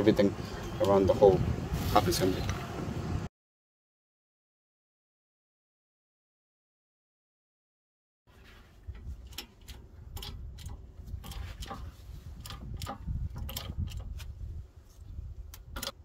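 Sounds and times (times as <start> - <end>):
sharp metallic clicks: 9.2 - 14.3, 15.5 - 16.0.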